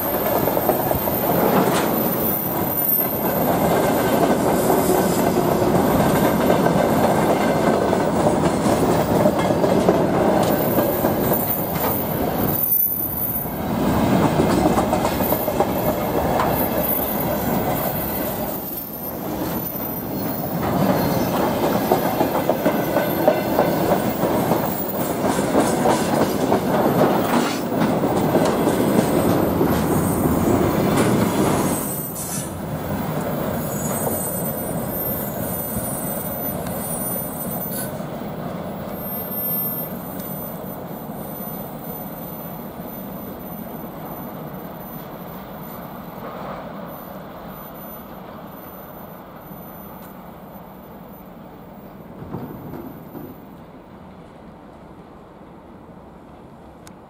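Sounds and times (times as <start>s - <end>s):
freight train wagons rolling past: 0.0s - 56.9s.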